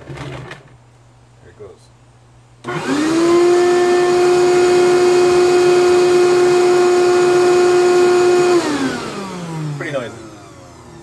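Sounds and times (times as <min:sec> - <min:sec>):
shop vacuum motor whining: 0:02.6 - 0:11.0.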